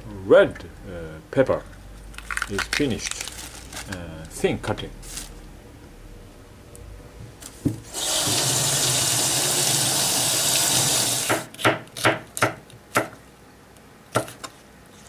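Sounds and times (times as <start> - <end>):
tap running into metal sink: 7.6 - 9.0
knife chopping on cutting board: 11.2 - 13.2.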